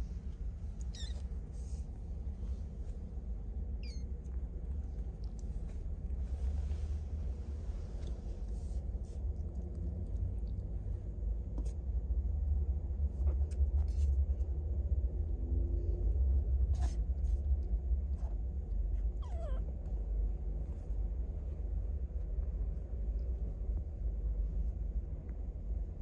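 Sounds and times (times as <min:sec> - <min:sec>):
steady low rumble: 0:00.0 - 0:26.0
kitten mewing: 0:00.8 - 0:01.3, 0:03.8 - 0:04.2, 0:19.2 - 0:19.8.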